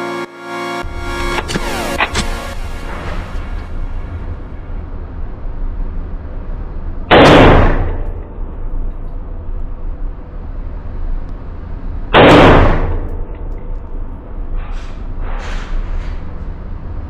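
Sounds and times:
steady low hum: 0:00.0 - 0:17.0
gunshots ringing indoors: 0:07.1 - 0:08.4, 0:12.1 - 0:13.3.

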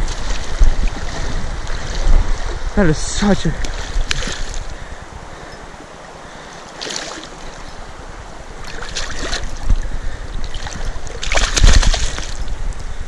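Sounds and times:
flowing stream: 0:00.0 - 0:13.0
fish splashing in water: 0:08.6 - 0:09.8, 0:10.4 - 0:12.4.

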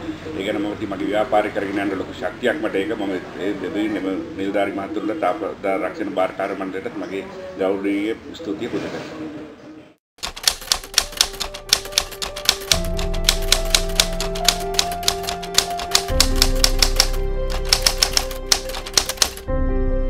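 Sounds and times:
typewriter keystroke clicks: 0:10.2 - 0:19.5
background music chords: 0:10.6 - 0:20.0.

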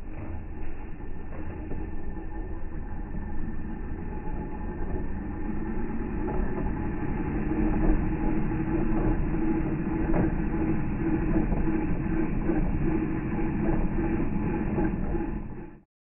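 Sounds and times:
motor deep rumble: 0:00.0 - 0:15.8.

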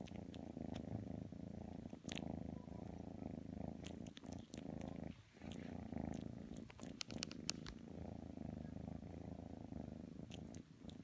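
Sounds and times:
kitten purring: 0:00.0 - 0:11.0
small clicks: 0:06.7 - 0:07.8.

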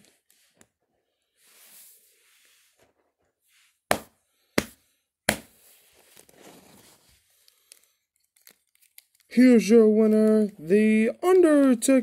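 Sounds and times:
toy figures rustling: 0:05.5 - 0:12.0.

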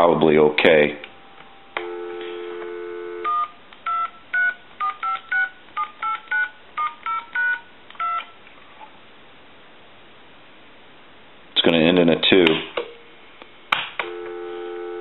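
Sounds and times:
telephone dial tone: 0:01.7 - 0:08.3, 0:14.0 - 0:15.0
touch-tone beeps: 0:01.8 - 0:08.3.

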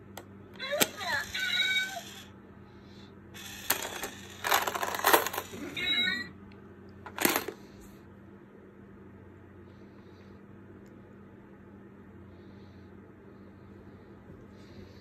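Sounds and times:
coin bank rattling: 0:03.4 - 0:05.6, 0:07.1 - 0:07.6.

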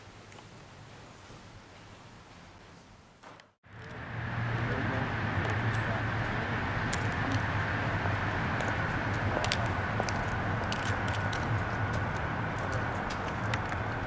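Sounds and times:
vehicle engine idling: 0:03.6 - 0:14.0.

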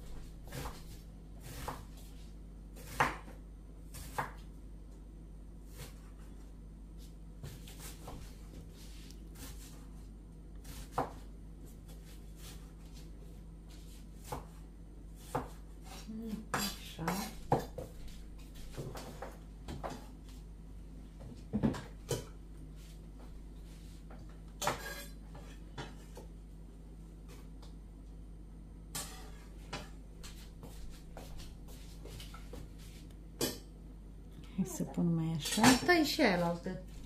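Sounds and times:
knife chopping on wooden board: 0:00.5 - 0:02.0, 0:02.8 - 0:04.4, 0:10.6 - 0:11.2, 0:14.2 - 0:14.6, 0:15.2 - 0:17.9.

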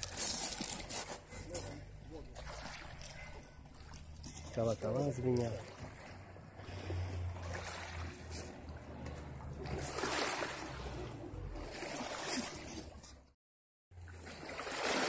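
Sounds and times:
waves washing over pebbles: 0:05.8 - 0:12.8.

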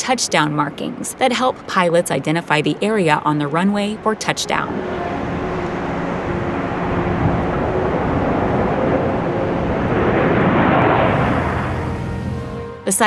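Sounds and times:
jet engine rushing: 0:04.2 - 0:13.0.

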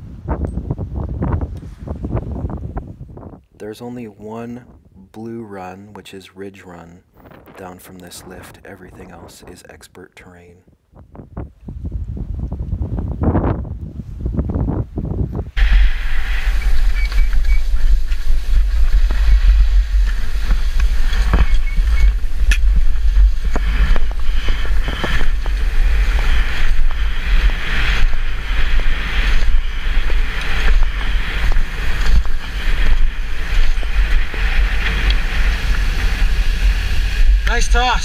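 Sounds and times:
wind buffeting microphone: 0:00.0 - 0:03.6, 0:04.6 - 0:05.1, 0:07.1 - 0:09.8, 0:10.7 - 0:38.0
skis scraping on snow: 0:15.6 - 0:38.0.

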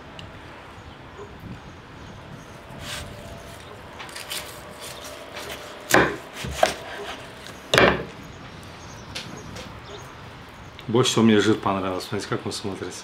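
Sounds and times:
knife scraping: 0:02.8 - 0:08.1
knife chopping on wooden board: 0:05.4 - 0:08.1.

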